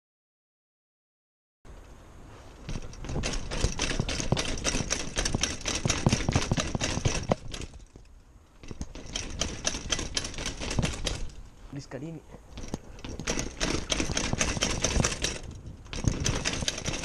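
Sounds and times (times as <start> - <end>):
bike clattering down stairs: 2.6 - 11.4, 12.4 - 17.0.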